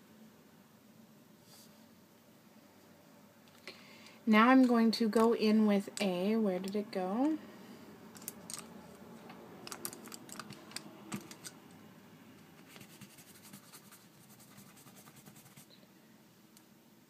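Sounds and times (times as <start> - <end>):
makeup brushes clattering: 8.2 - 8.8, 9.6 - 11.6.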